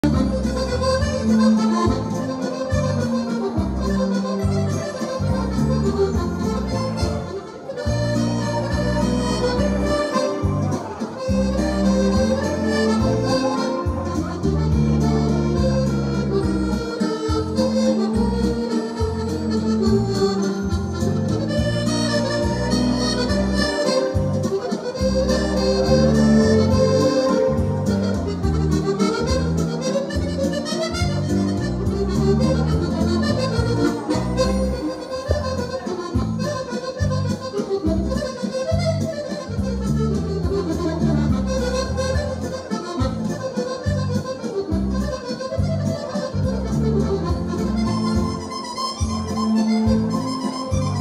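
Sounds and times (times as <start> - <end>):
accordion playing waltz: 0.0 - 51.0.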